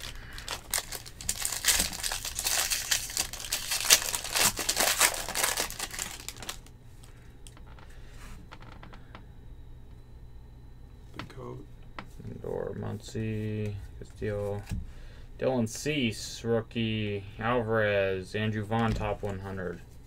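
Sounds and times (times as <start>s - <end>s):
foil wrapper crinkling and tearing: 0.0s - 6.7s
handling of cards: 0.0s - 7.8s.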